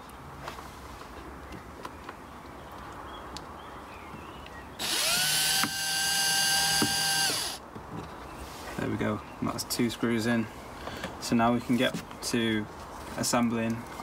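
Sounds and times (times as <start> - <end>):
cordless drill whine: 4.8 - 7.6.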